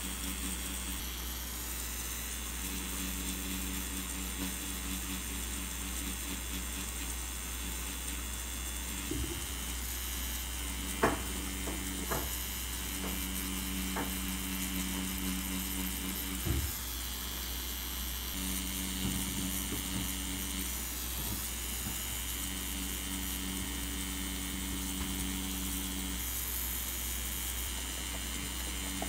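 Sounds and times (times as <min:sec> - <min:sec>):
tattoo machine humming: 0:00.0 - 0:29.0
knock: 0:11.0 - 0:12.4.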